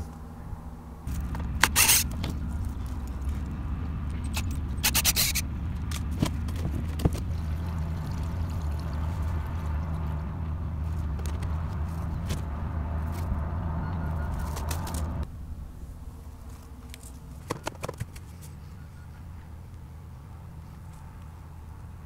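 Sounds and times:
steady low hum: 0.0 - 22.0
plastic tank scraping rattles: 1.1 - 13.3.

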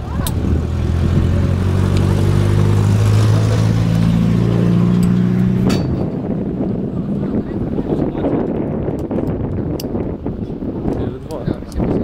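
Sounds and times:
engine running: 0.0 - 9.7.

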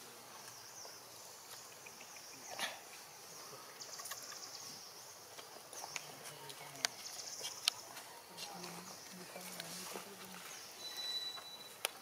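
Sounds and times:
insects trilling: 0.0 - 9.6
insects buzzing: 0.0 - 12.0.

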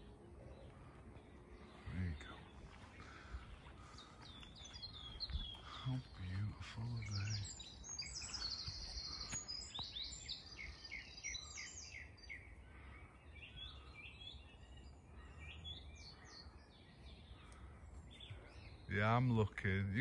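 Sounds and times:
low wind-like rumble: 0.0 - 11.6
songbirds chirping and singing: 0.0 - 20.0.

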